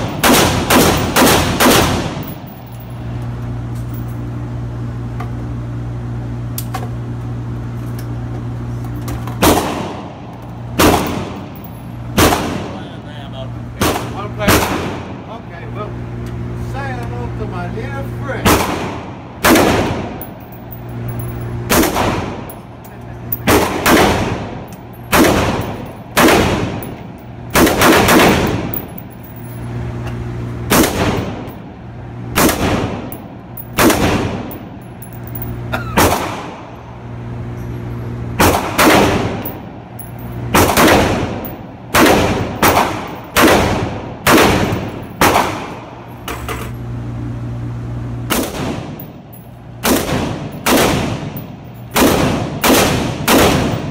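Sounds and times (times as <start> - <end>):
rifle shots echoing indoors: 0.0 - 2.5, 10.7 - 11.5, 18.5 - 20.2, 23.4 - 26.9, 27.5 - 29.1, 30.7 - 31.5, 32.3 - 34.6, 38.4 - 39.6, 40.5 - 45.9, 49.8 - 53.9
steady low hum: 0.0 - 53.9.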